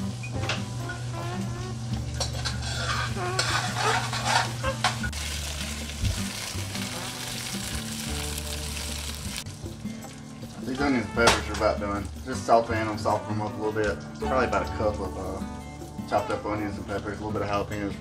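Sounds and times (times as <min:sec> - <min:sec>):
utensil scraping a pan: 0:00.8 - 0:05.2
vegetables sizzling in oil: 0:01.9 - 0:10.6.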